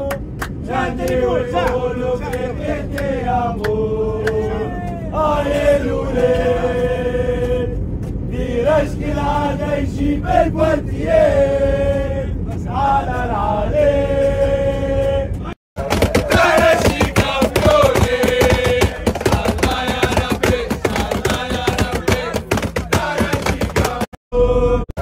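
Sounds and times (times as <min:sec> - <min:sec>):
airliner cabin rumble: 0:00.0 - 0:25.0
football fans chanting: 0:00.0 - 0:25.0
rhythmic beats: 0:15.8 - 0:24.2.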